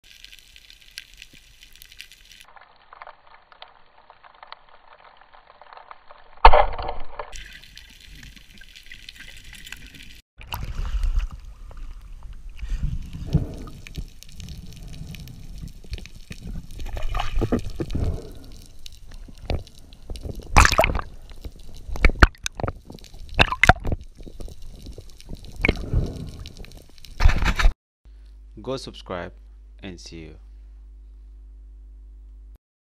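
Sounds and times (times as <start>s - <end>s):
muffled water rumble and gurgling: 7.9s - 27.6s.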